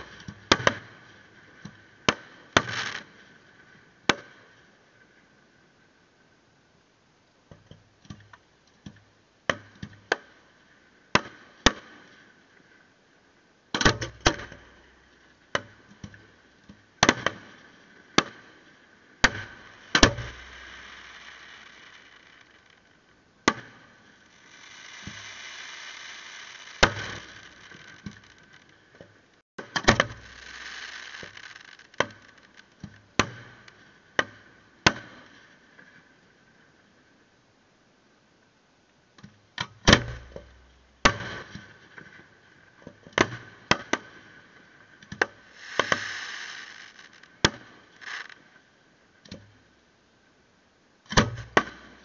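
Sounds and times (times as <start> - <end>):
fireworks bangs: 0.0 - 3.5, 17.0 - 28.9, 29.6 - 34.0, 39.8 - 42.2, 45.4 - 48.5
fireworks hiss and crackle: 0.0 - 5.4, 9.5 - 12.9, 13.7 - 36.7, 39.8 - 49.7, 51.2 - 52.0.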